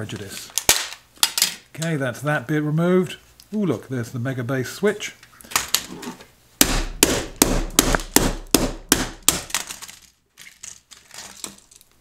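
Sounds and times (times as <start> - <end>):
clatter of plastic parts: 0.1 - 1.6, 9.5 - 12.0
hammer striking plastic case: 6.6 - 9.7.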